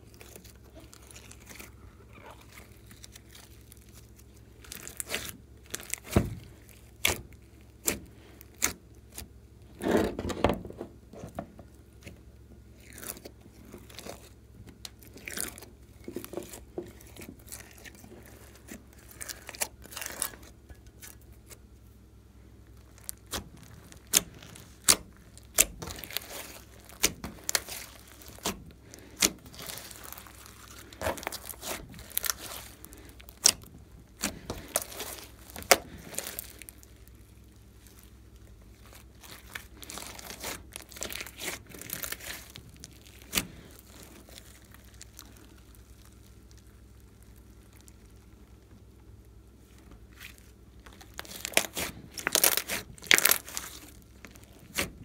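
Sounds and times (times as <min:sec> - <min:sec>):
slime popping and crackling: 0:00.0 - 0:09.2, 0:12.8 - 0:21.6, 0:22.6 - 0:49.4, 0:50.0 - 0:55.0
wet squelch of slime: 0:00.0 - 0:09.2, 0:22.7 - 0:48.6, 0:50.0 - 0:55.0.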